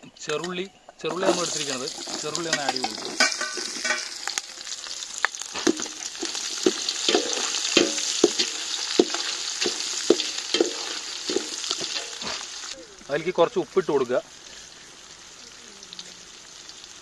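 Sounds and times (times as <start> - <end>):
shallots sizzling in hot fat: 1.1 - 17.0
ladle knocking metal pot: 2.5 - 4.2, 5.6 - 12.4.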